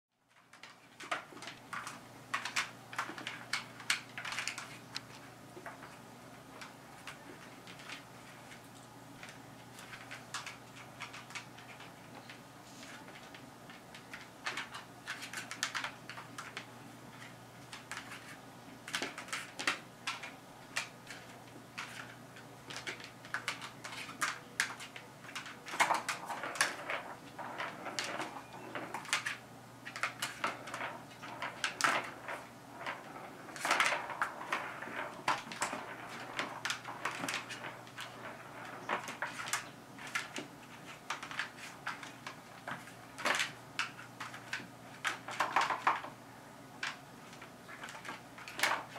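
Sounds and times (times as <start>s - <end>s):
clicks and clatter: 0.3s - 6.0s, 6.6s - 46.2s, 46.8s - 48.9s
ball rolling round plastic track: 12.9s - 46.2s, 46.8s - 48.9s.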